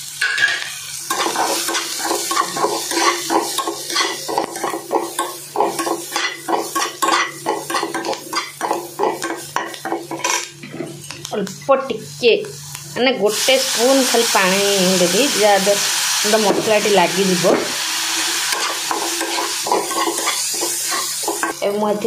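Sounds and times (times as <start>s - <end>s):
vegetables sizzling: 0.0s - 22.0s
metal spatula scraping a pan: 0.2s - 9.4s, 18.1s - 21.6s.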